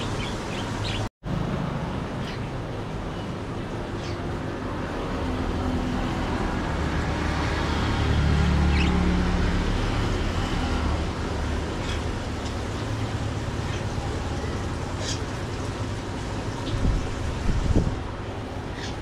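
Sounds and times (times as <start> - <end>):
vehicle engine passing: 4.6 - 19.0.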